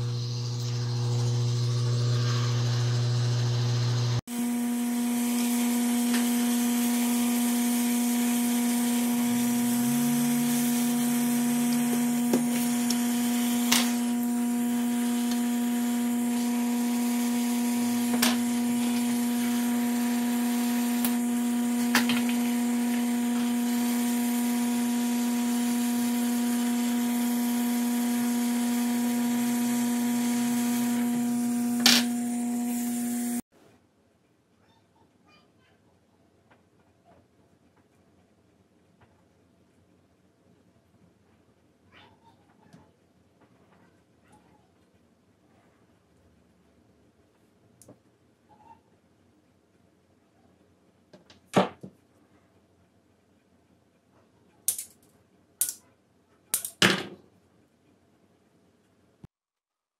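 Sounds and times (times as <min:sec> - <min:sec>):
steady hum: 0:00.0 - 0:33.4
hot air hissing: 0:03.6 - 0:33.4.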